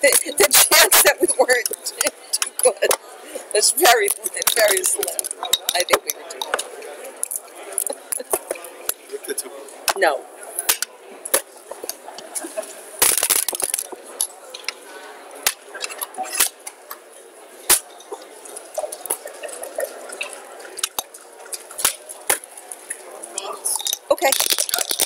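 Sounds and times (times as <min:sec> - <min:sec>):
checkers and dice clicking on board: 0:23.8 - 0:25.0.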